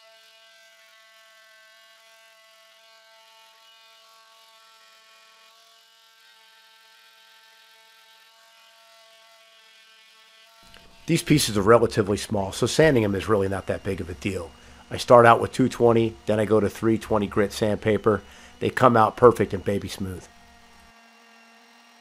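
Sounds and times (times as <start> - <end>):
electric sander motor whine: 10.0 - 22.0.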